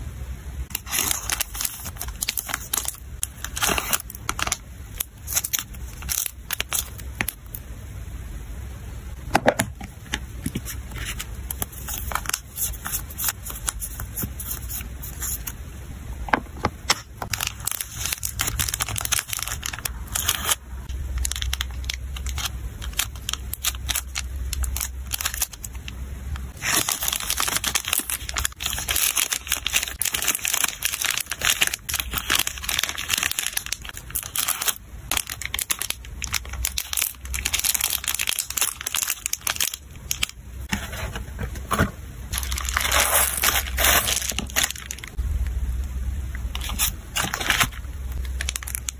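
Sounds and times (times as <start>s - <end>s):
plastic bag crinkling: 17.3s - 20.6s, 21.2s - 25.8s, 26.5s - 40.4s, 42.3s - 45.2s, 46.5s - 48.9s
paper stickers rustling: 26.5s - 45.2s.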